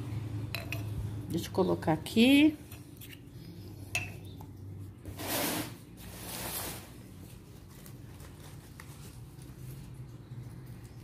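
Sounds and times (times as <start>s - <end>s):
crumpled paper rustling: 6.0s - 11.0s.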